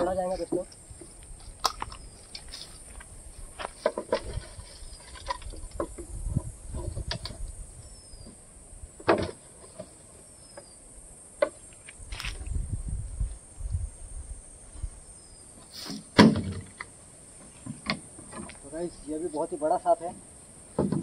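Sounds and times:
high-pitched insect buzz: 0:10.2 - 0:16.1.

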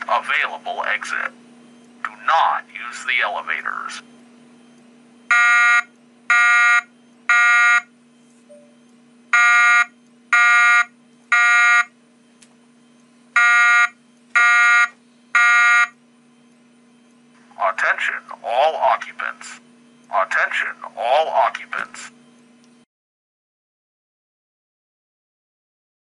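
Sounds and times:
buzzy fire alarm beeps: 0:01.0 - 0:01.9, 0:02.9 - 0:22.4.

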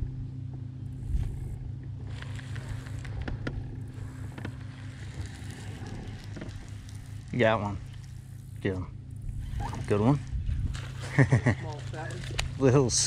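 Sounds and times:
boat motor humming: 0:00.0 - 0:13.0.

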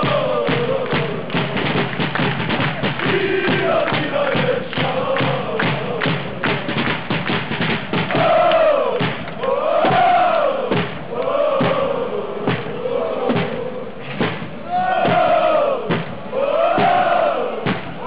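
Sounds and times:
crowd chanting in unison: 0:00.0 - 0:01.8, 0:02.6 - 0:06.8, 0:08.0 - 0:18.0
crowd clapping: 0:00.0 - 0:09.6
bass drums beating: 0:00.0 - 0:18.0.

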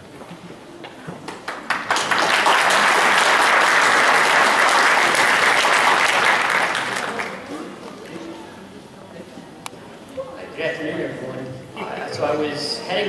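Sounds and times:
audience applauding: 0:01.2 - 0:07.5.

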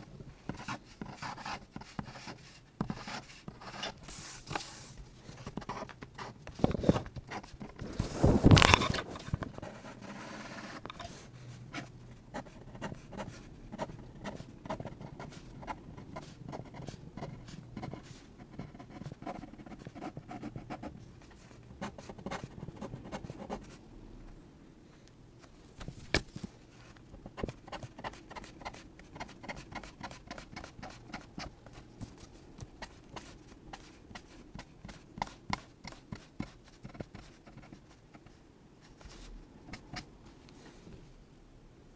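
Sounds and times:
pen scratching on paper: 0:00.5 - 0:04.8, 0:09.5 - 0:20.9, 0:21.8 - 0:23.8, 0:27.3 - 0:38.4.

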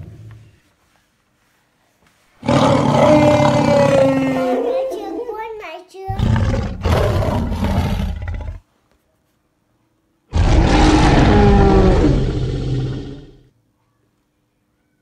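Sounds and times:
loud animal roars: 0:02.4 - 0:04.7, 0:06.2 - 0:08.6, 0:10.3 - 0:13.5.

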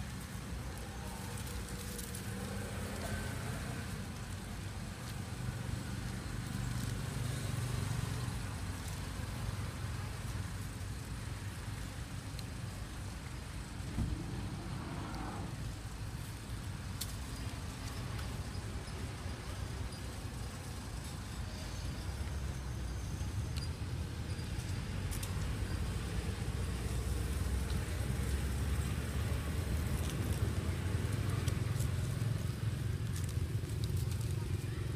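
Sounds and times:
low outdoor rumble: 0:00.0 - 0:34.9
faint ticks: 0:11.8 - 0:14.2.

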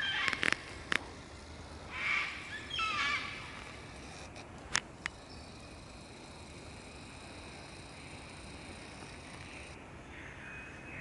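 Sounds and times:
sharp bird clicks: 0:00.0 - 0:01.1
lyrebird singing: 0:00.0 - 0:04.3, 0:05.0 - 0:09.8.

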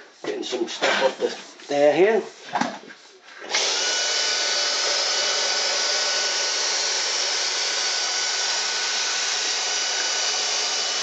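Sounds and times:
vacuum cleaner running: 0:03.5 - 0:11.0.

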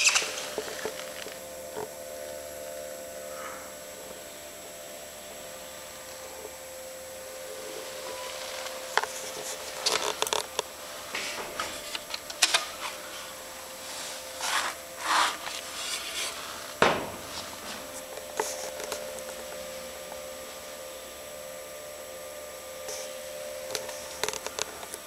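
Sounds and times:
faint steady hum: 0:00.0 - 0:25.0
rubbing and scraping: 0:13.9 - 0:18.8.

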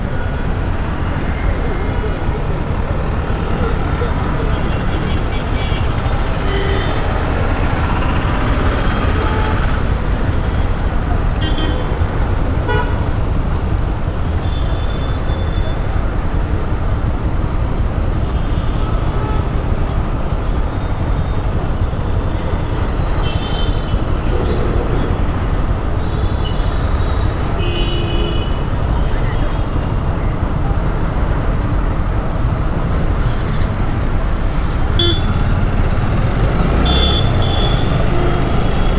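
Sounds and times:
city traffic rumble: 0:00.0 - 0:38.9
vehicle horn toots: 0:35.0 - 0:35.4, 0:36.8 - 0:38.3.

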